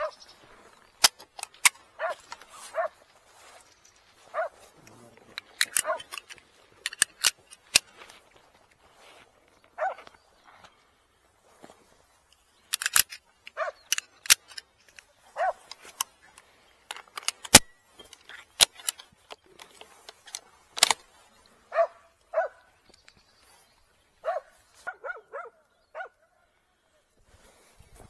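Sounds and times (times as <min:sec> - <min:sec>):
sharp cracks and snaps: 0:01.0 - 0:02.5, 0:05.3 - 0:08.8, 0:12.3 - 0:21.2
dogs barking: 0:02.0 - 0:03.0, 0:04.3 - 0:04.7, 0:05.8 - 0:06.1, 0:09.8 - 0:10.1, 0:13.6 - 0:13.9, 0:15.3 - 0:15.7, 0:21.7 - 0:22.8, 0:24.2 - 0:26.3.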